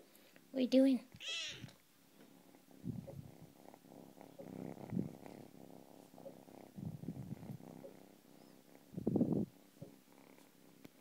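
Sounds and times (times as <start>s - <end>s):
kitten purring: 1.2s - 11.0s.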